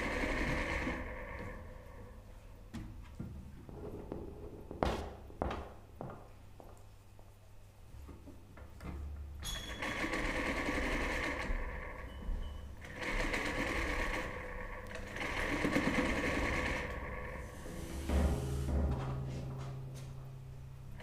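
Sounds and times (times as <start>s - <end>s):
sewing machine stitching: 0.0s - 1.8s, 9.5s - 12.1s, 12.8s - 18.7s.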